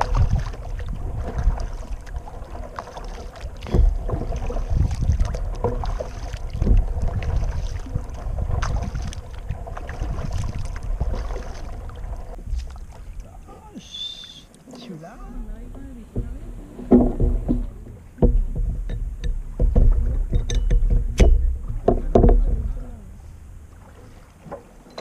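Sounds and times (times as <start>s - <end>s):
paddle splashing in water: 0.0s - 25.0s
low rumble: 15.3s - 24.0s
knocks: 15.6s - 22.8s.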